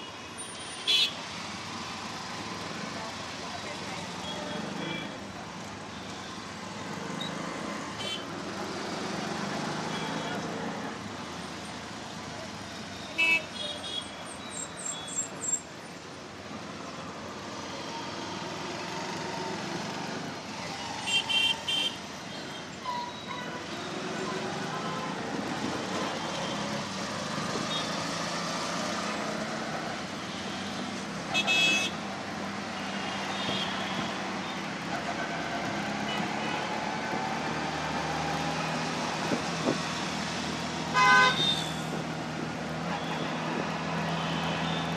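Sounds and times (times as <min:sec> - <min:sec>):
road noise: 0:00.0 - 0:44.9
vehicle horn toot: 0:40.9 - 0:41.6.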